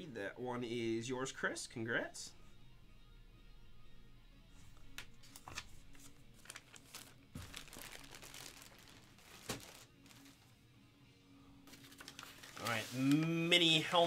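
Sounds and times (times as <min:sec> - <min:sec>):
plastic bag and paper crinkling: 0:06.3 - 0:10.5, 0:11.7 - 0:13.9.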